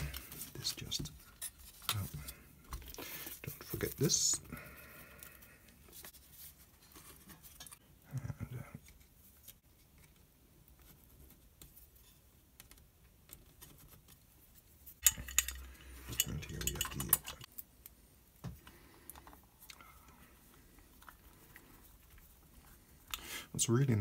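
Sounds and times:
light ticks of small parts: 8.8s - 14.2s.

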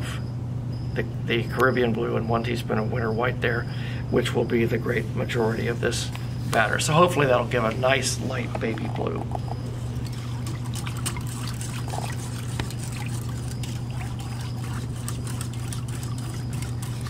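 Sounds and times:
steady low hum: 0.0s - 17.0s
liquid sloshing: 8.1s - 17.0s
whisk clicking against glass bowl: 10.4s - 17.0s.

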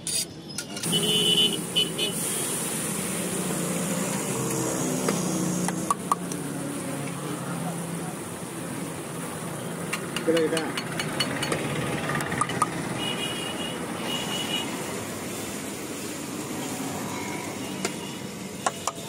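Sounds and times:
traffic noise: 0.0s - 19.0s.

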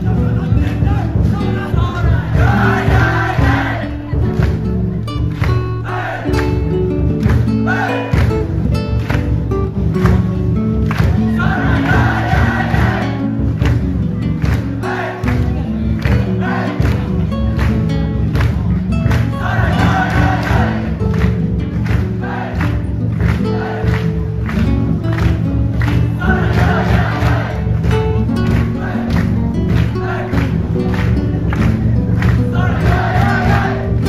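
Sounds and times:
crowd singing and shouting: 0.0s - 4.4s, 5.8s - 6.6s, 7.5s - 8.4s, 11.0s - 13.6s, 14.7s - 17.5s, 19.3s - 21.2s, 21.9s - 24.3s, 26.0s - 34.0s.

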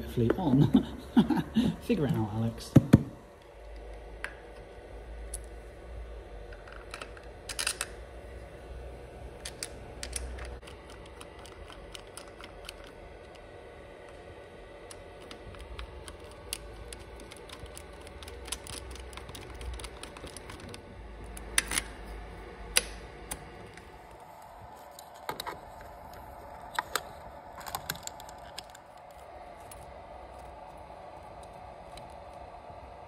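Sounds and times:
faint steady hum: 0.0s - 33.0s
screwdriver clicks and metal taps: 9.5s - 12.9s.

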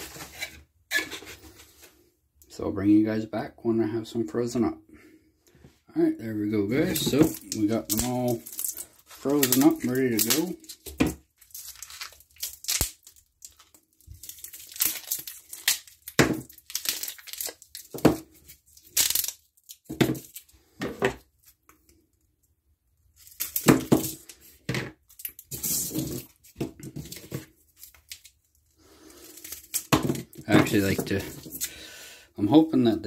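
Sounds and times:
plastic sleeves crinkling: 6.6s - 21.9s, 23.1s - 31.8s.

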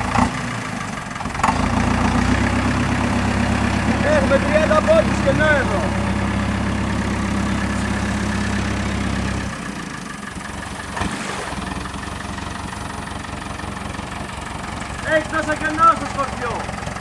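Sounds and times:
tractor engine humming: 0.0s - 17.0s.

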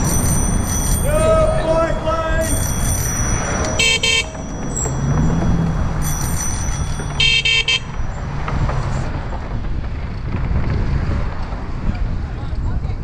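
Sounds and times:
bicycle horn honking: 0.0s - 5.0s, 6.0s - 8.0s
wind: 0.0s - 13.0s.

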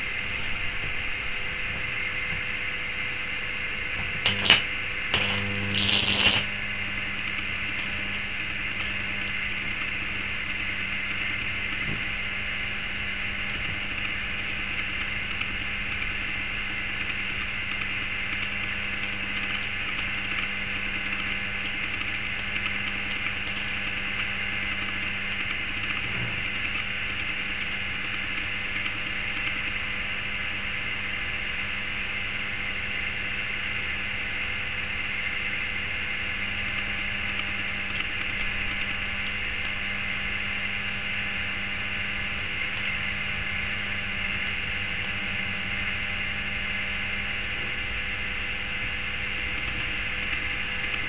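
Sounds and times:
steady electrical hum: 0.0s - 14.8s
crackling high-voltage arcs: 4.2s - 6.5s.

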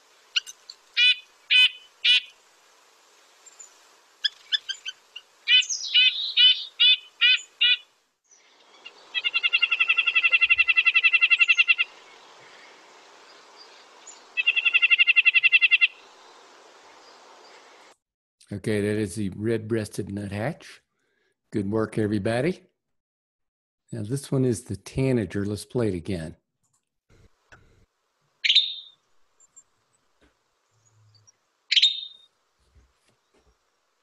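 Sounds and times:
bird trills: 0.4s - 2.4s, 4.2s - 12.0s, 14.0s - 16.0s, 28.4s - 29.0s, 30.9s - 32.3s
nuthatch calling: 0.4s - 2.4s, 4.2s - 12.6s, 13.3s - 16.0s, 28.4s - 29.0s, 30.9s - 32.3s.

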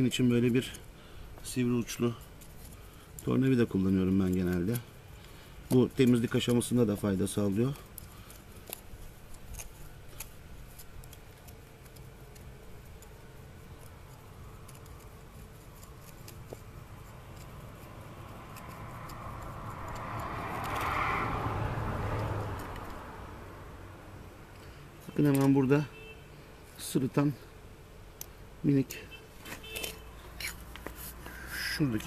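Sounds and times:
screwdriver scratching soil: 0.0s - 20.9s
broad rushing noise: 14.7s - 24.0s.

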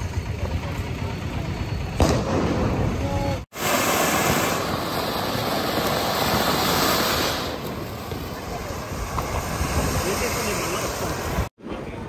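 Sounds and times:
street traffic: 0.0s - 3.5s, 7.4s - 12.0s
firework fountain hissing: 0.0s - 12.0s.

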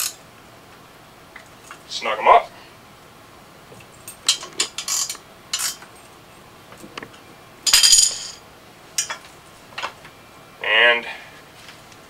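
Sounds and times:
metallic tool clinks: 3.9s - 6.2s, 7.7s - 8.4s, 9.0s - 9.2s
ringing metal clatter: 4.0s - 6.2s, 7.7s - 8.4s, 9.0s - 9.3s.

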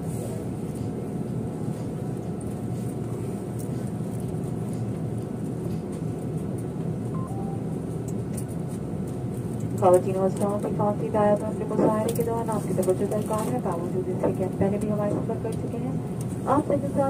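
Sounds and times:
airliner cabin rumble: 0.0s - 17.0s.

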